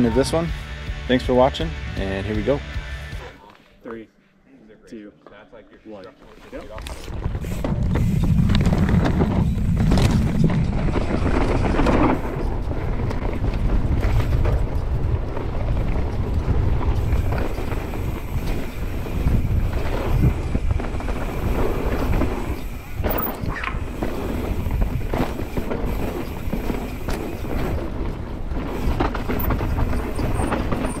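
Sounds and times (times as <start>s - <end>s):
bike knocking and rattling: 6.6s - 31.0s
wind rushing over microphone: 7.1s - 31.0s.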